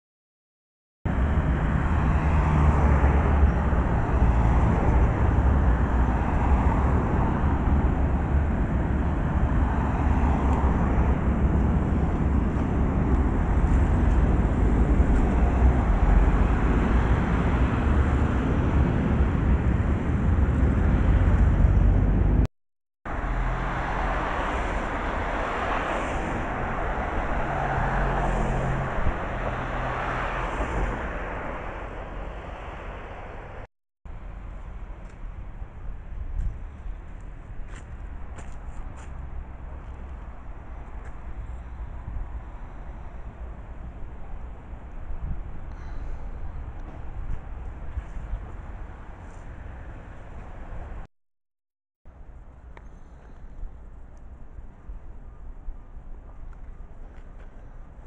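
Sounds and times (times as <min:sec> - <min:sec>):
cars passing: 0:01.1 - 0:22.5, 0:23.1 - 0:51.1.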